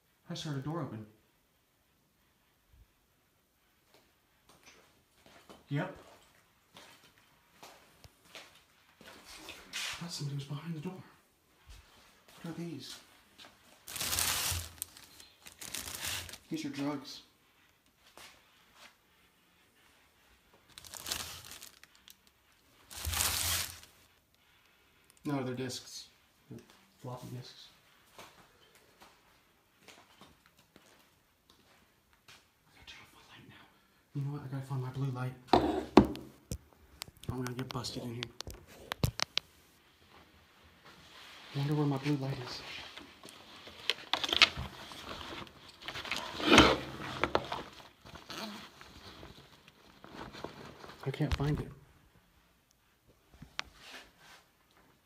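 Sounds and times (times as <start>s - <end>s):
plastic bag crinkling: 13.8s - 16.5s, 20.7s - 24.0s.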